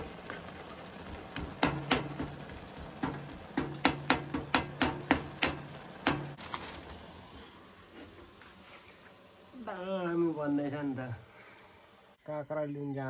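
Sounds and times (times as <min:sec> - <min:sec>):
spatula knocking on frying pan: 0:01.2 - 0:06.4.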